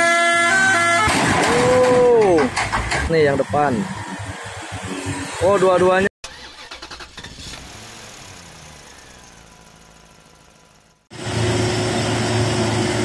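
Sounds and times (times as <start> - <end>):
pulsing truck engine: 6.2 - 13.0
steady truck engine: 6.2 - 13.0.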